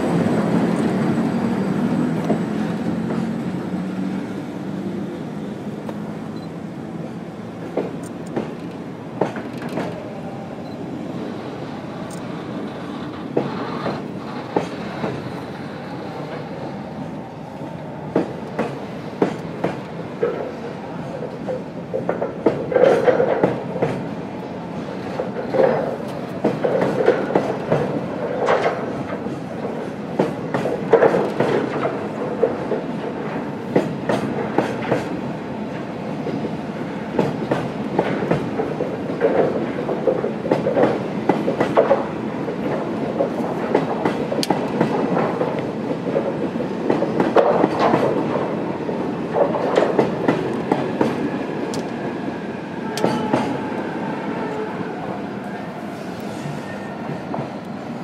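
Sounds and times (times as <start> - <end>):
train rumble: 0.0 - 58.0
train wheels clacking over rail joints: 7.6 - 10.0, 12.1 - 15.4, 18.1 - 24.2, 24.8 - 36.5, 37.1 - 52.1, 52.9 - 53.7.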